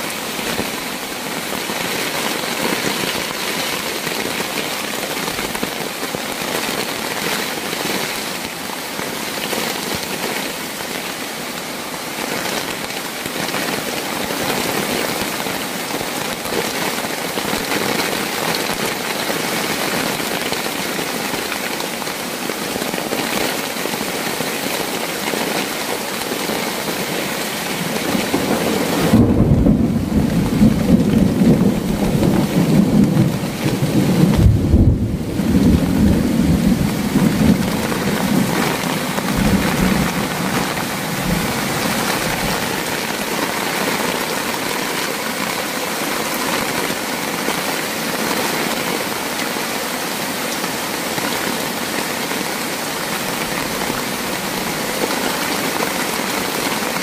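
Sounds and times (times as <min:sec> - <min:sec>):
heavy rain: 0:00.0 - 0:57.0
thunder rumbling: 0:28.1 - 0:43.3.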